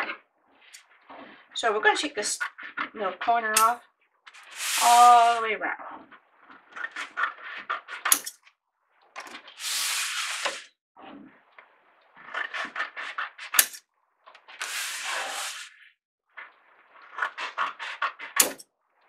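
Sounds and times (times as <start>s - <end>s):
scissors snipping paper: 3.5s - 3.8s, 12.3s - 13.8s, 17.1s - 18.6s.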